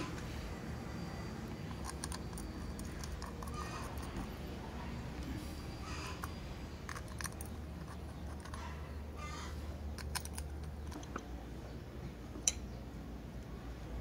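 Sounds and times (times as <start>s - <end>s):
steady low hum: 0.0s - 14.0s
metal clicks and taps: 12.3s - 12.7s.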